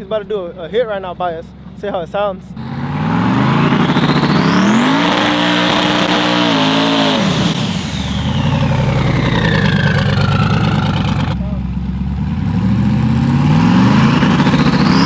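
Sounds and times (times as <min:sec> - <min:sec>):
pickup truck engine accelerating: 0:02.6 - 0:15.0
turbo whistle: 0:03.1 - 0:11.4.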